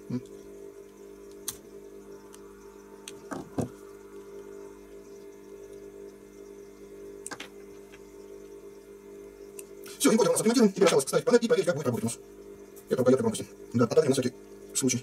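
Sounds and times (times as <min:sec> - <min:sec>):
steady low hum: 0:00.0 - 0:15.0
knocks on work mat: 0:03.3 - 0:03.8.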